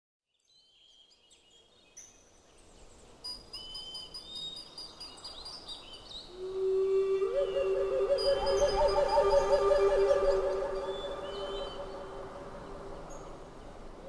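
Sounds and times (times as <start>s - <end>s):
faint background hiss: 0.3s - 14.0s
low held musical note: 6.5s - 13.6s
birds chirping and whistling: 7.2s - 13.3s.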